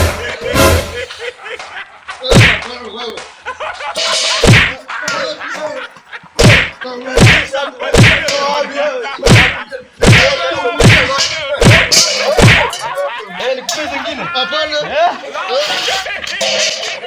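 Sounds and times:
metal basin whacks: 2.3 - 2.7, 4.0 - 5.2, 6.4 - 8.4, 9.3 - 12.9.

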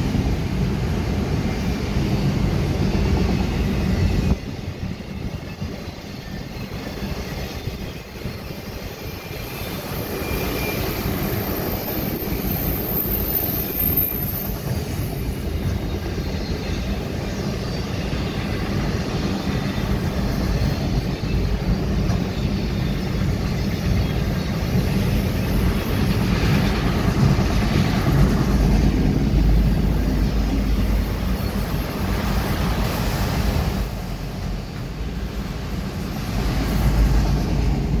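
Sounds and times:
freight train wheels rumbling on rails: 0.0 - 38.0.

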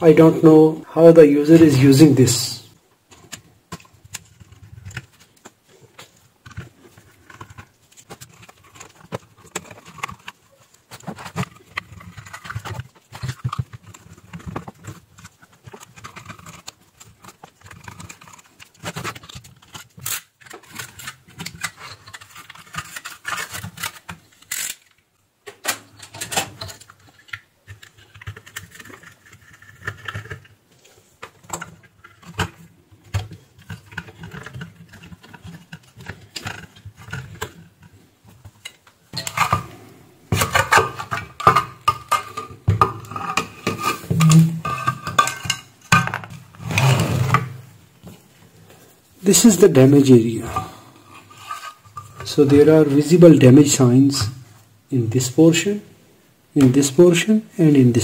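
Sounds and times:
metal case clicks and rattles: 31.2 - 46.6.

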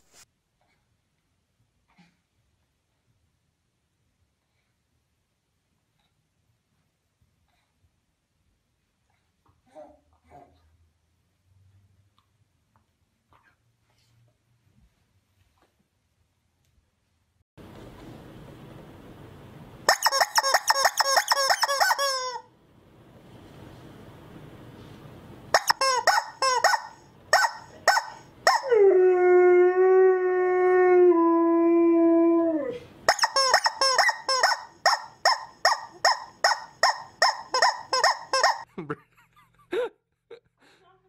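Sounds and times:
rubber chicken squawks: 19.9 - 22.5, 25.6 - 28.6, 33.1 - 38.6.

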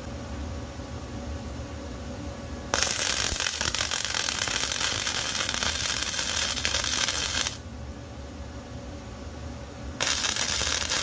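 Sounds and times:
welder arc crackling: 2.8 - 7.6, 10.0 - 11.0.

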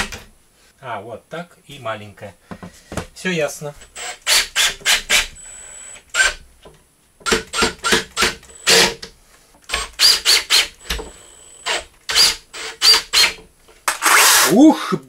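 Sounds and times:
faint steady whine: 0.0 - 13.9
drill-driver driving screws: 3.9 - 6.4, 7.2 - 9.1, 9.7 - 14.6.

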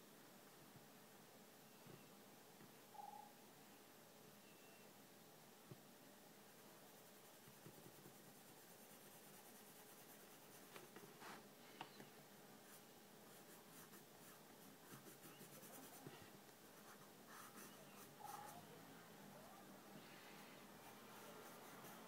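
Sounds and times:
pencil scratching on paper: 12.7 - 16.2, 16.8 - 18.6, 20.8 - 22.0.

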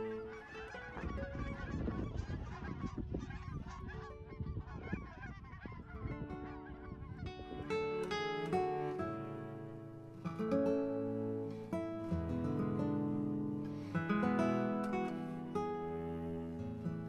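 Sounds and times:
geese honking: 0.0 - 10.1.

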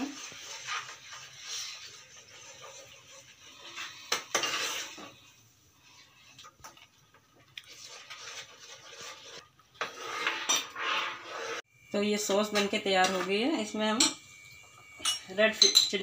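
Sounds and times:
metal ladle scraping a pan: 0.0 - 16.0.

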